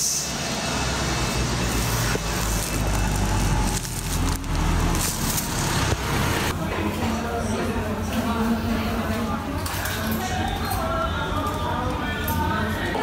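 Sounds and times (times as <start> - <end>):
street rumble: 0.3 - 6.6.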